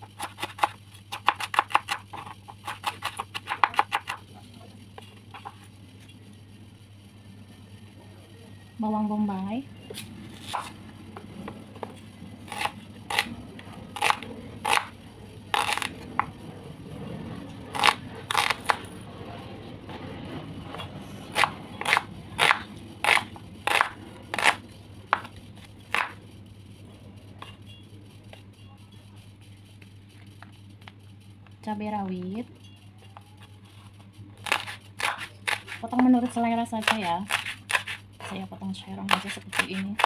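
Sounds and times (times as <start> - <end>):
knife slicing onion on board: 0.0 - 4.3, 10.0 - 10.8, 11.8 - 13.3, 14.0 - 14.9, 20.7 - 25.3, 25.9 - 26.2, 34.4 - 38.4, 39.0 - 40.0.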